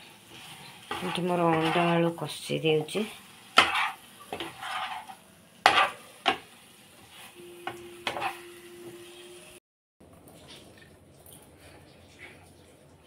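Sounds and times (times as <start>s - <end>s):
spatula scraping frying pan: 0.2s - 2.3s, 2.9s - 8.6s.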